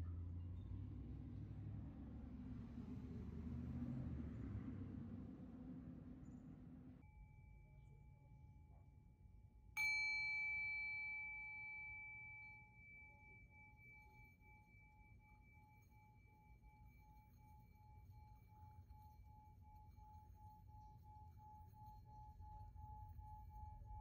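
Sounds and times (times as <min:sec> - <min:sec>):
bell-like metal chime: 0:07.0 - 0:08.9, 0:09.7 - 0:24.0.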